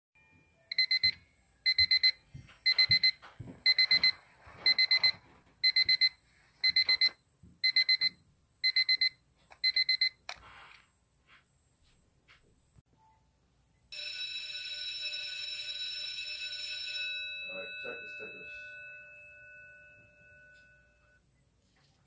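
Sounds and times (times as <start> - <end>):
electronic alarm beeping: 0.7 - 10.2.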